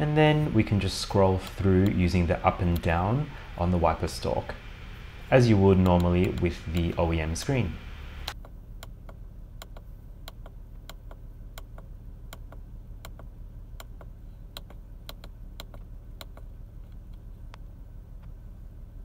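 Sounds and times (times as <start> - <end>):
low steady hum: 0.0 - 19.0
buttons clicking: 1.4 - 3.1, 5.7 - 7.0.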